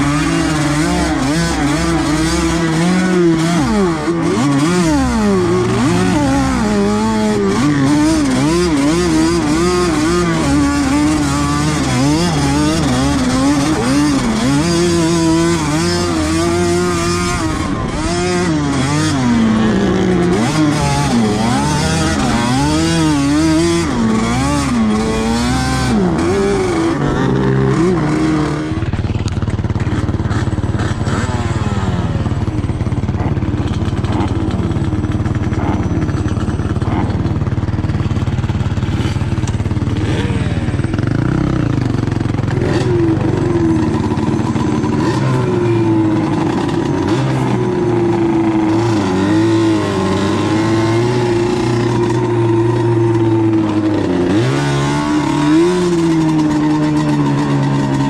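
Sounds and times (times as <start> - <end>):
atv engine revving: 0.0 - 58.0.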